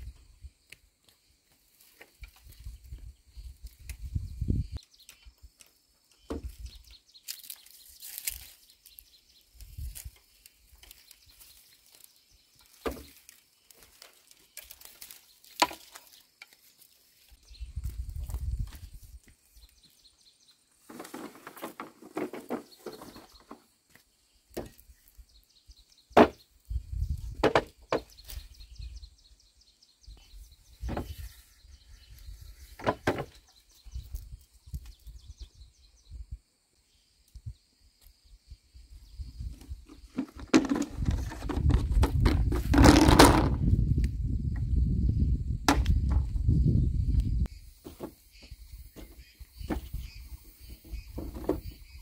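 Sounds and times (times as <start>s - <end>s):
bamboo poles knocking: 12.7s - 13.2s, 15.5s - 16.6s, 26.2s - 26.4s, 27.4s - 28.1s, 40.0s - 43.6s
pole dragging and scraping: 39.5s - 43.8s.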